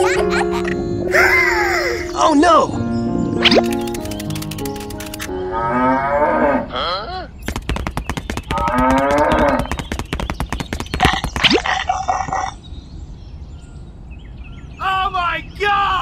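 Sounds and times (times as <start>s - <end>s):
fast sharp clicks: 3.4s - 5.3s, 7.4s - 11.7s
cow mooing: 5.4s - 7.0s.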